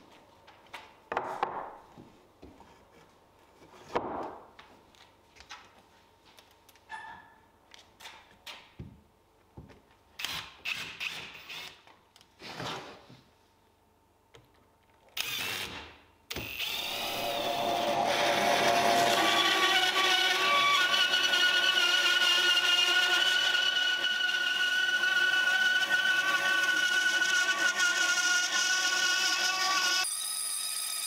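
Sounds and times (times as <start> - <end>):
cordless drill driving screws: 15.2 - 31.0
band saw whining: 16.5 - 31.0.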